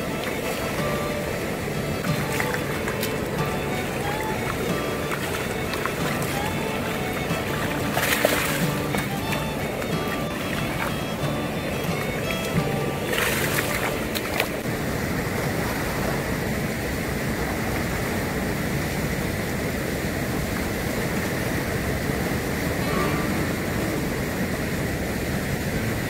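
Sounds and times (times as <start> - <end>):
fish splashing in water: 0.0 - 14.7
sea water washing on rocks: 0.0 - 26.0.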